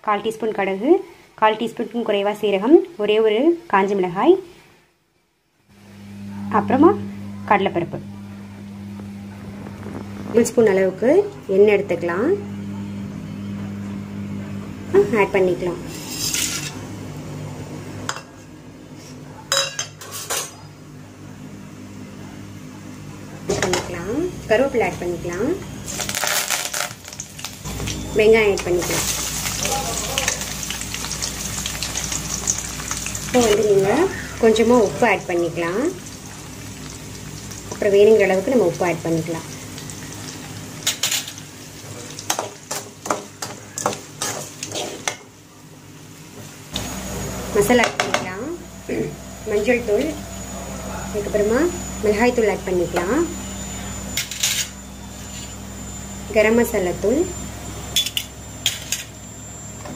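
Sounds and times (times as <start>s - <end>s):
low steady hum: 5.6s - 43.1s
metal skimmer scraping a pan: 15.9s - 16.8s
onions sizzling in oil: 25.3s - 50.6s.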